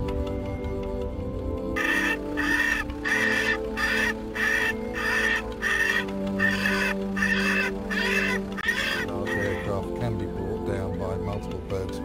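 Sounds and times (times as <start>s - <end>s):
bird distress calls over loudspeaker: 1.8s - 9.7s.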